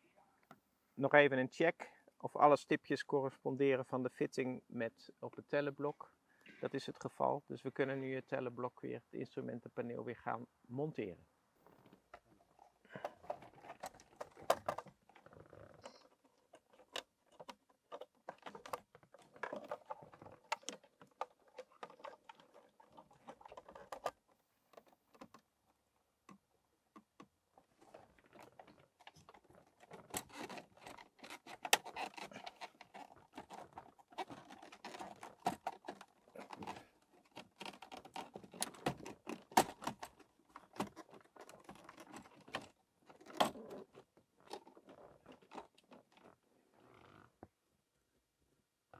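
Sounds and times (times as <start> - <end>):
plastic parts clicking and rustling: 11.8 - 25.5, 27.0 - 46.4.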